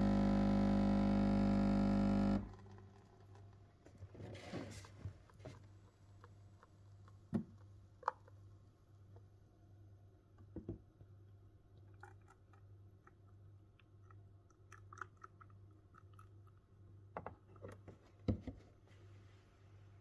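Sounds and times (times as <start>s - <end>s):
coffee machine pump buzzing: 0.0s - 2.6s.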